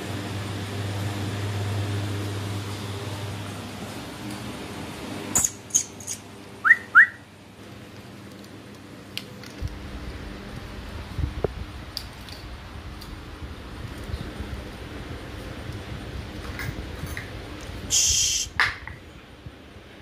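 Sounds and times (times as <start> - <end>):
person whistling: 6.6 - 7.2.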